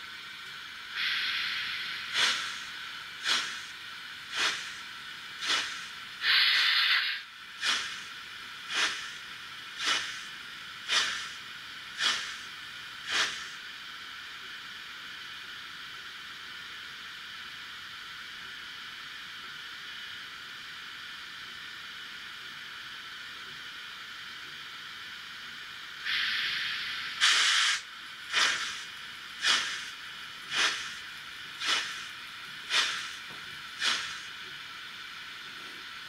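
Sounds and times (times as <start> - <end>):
model locomotive steam chuffs: 0.0 - 36.0
steam hiss: 0.8 - 13.7, 26.0 - 36.0.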